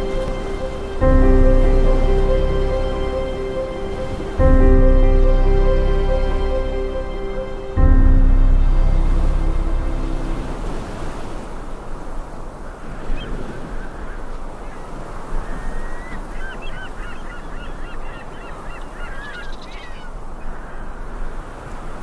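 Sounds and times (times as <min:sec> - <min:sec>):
rushing outdoor ambience: 0:00.0 - 0:13.7.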